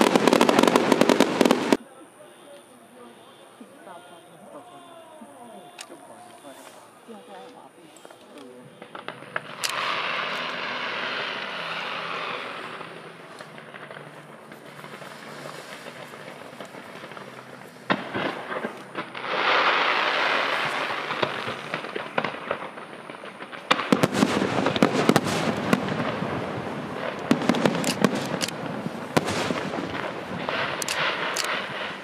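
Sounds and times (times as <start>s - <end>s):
firework bang: 0.0s - 1.8s, 13.6s - 32.0s
rapid firework bangs and crackles: 0.0s - 1.8s, 8.7s - 32.0s
loud rushing hiss: 9.5s - 32.0s.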